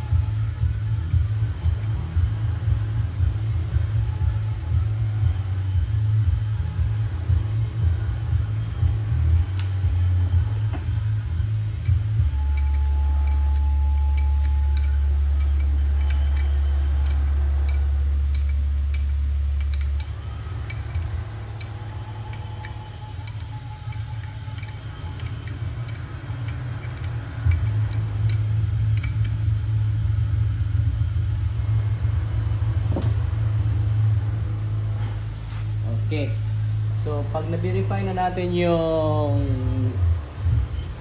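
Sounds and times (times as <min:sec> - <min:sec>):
loud low hum: 0:00.0 - 0:41.0
ratchet wrench clicking: 0:11.8 - 0:29.5.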